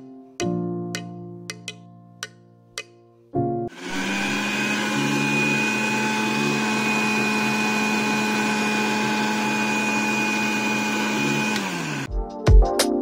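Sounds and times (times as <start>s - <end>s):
mixer grinder motor humming: 3.7s - 12.1s.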